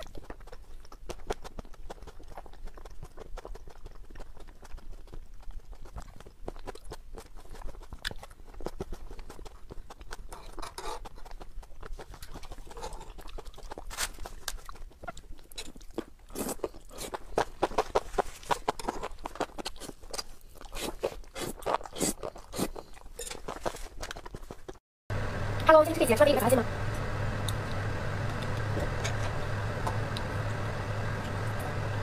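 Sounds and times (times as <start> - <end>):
wet slurping and chewing: 0.0 - 24.8.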